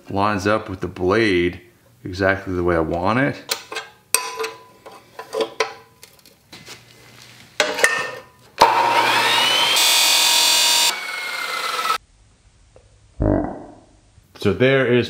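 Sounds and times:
chop saw motor whine: 8.6s - 12.0s.

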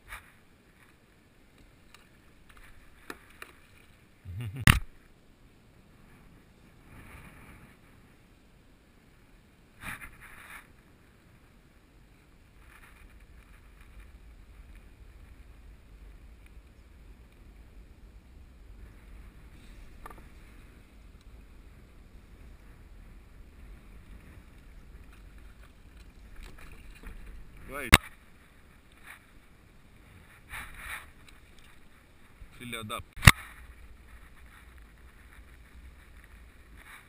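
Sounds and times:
wind rumble on microphone: 12.5s - 32.6s, 33.3s - 37.0s.

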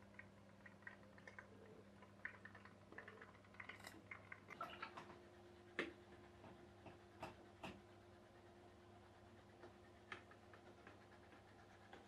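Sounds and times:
faint ticks and clicks: 0.0s - 7.9s, 9.3s - 12.0s.

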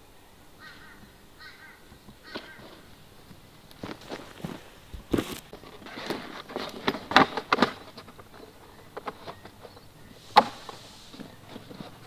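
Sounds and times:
footsteps: 1.9s - 9.6s.

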